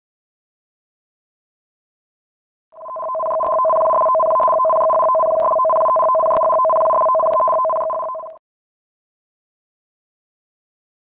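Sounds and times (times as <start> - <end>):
two-tone electronic alarm: 2.8 - 8.4.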